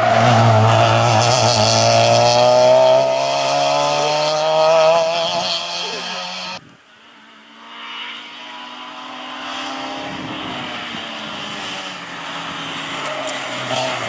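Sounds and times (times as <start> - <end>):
rally car engine running hard: 0.0 - 6.6.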